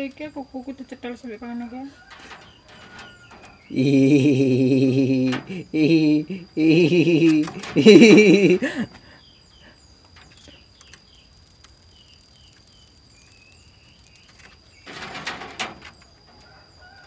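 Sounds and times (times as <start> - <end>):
bird chirping: 2.3 - 15.1.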